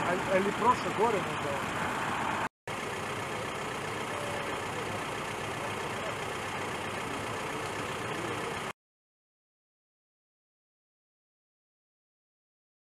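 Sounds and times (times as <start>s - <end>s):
van engine idling: 0.0s - 8.8s.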